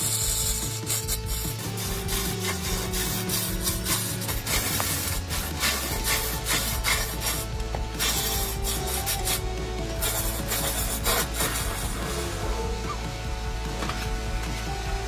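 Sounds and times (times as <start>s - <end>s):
tool scraping spinning log: 0.0s - 13.1s
background music: 0.0s - 15.0s
lathe motor hum: 0.0s - 15.0s.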